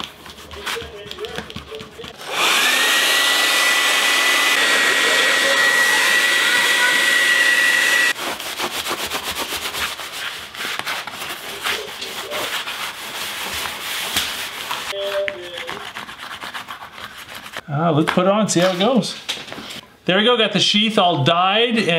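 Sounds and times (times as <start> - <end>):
paper towel rubbing leather: 0.0 - 2.2, 8.1 - 17.6
heat gun fan whine: 2.2 - 8.2.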